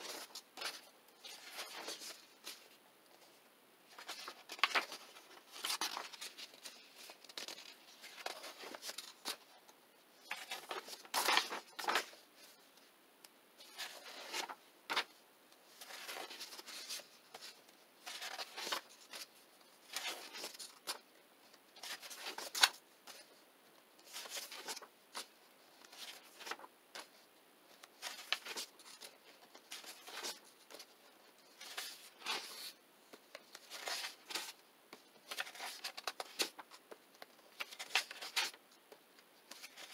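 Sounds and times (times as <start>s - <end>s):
book pages rustling: 0.0s - 12.8s, 13.6s - 21.1s, 21.8s - 23.4s, 24.0s - 39.9s.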